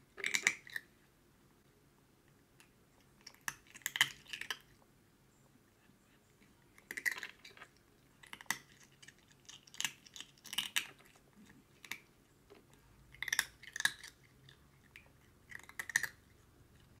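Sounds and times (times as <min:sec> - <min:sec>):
cat chewing crunchy treat: 0:02.3 - 0:04.9, 0:06.4 - 0:17.0.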